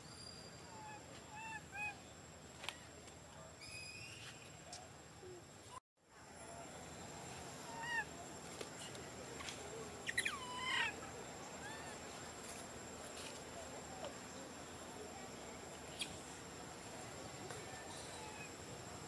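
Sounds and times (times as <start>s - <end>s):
high insect drone: 6.1s - 19.0s
baby monkey crying: 10.1s - 11.0s.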